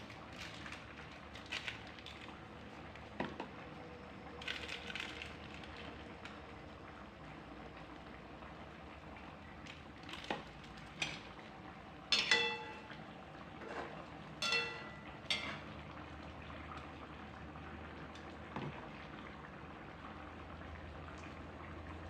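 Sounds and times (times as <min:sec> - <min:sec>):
curry simmering in a wok: 0:00.0 - 0:22.0
spoon clinking against pan: 0:12.1 - 0:13.0, 0:14.4 - 0:15.7.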